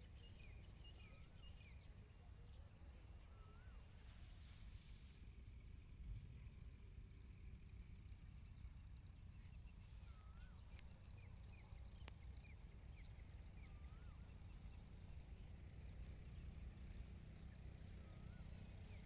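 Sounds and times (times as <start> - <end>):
faint clicks: 1.2 - 1.6, 11.9 - 12.6
bird chirps: 7.9 - 19.0.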